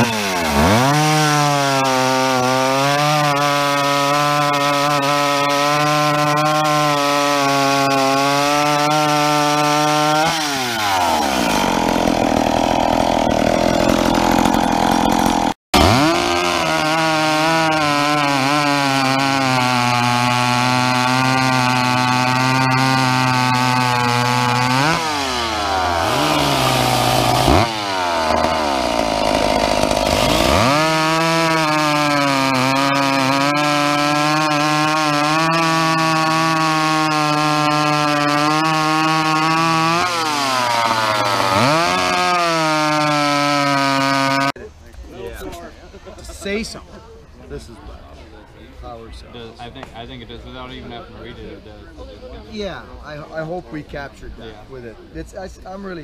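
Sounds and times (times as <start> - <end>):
chainsaw revving and cutting log: 0.0 - 44.6.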